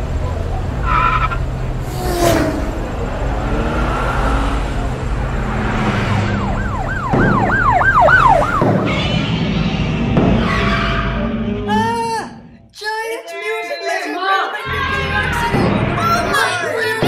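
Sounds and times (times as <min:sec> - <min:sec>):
low traffic hum: 0:00.0 - 0:12.7
siren wailing: 0:05.7 - 0:09.9.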